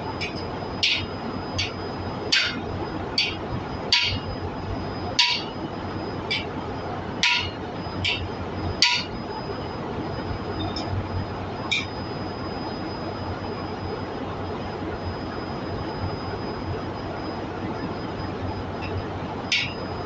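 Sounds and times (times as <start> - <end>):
hammer striking metal tool: 0.2 - 1.7, 2.3 - 2.6, 3.2 - 4.2, 5.2 - 5.5, 7.2 - 8.2, 8.8 - 9.1, 19.5 - 19.8.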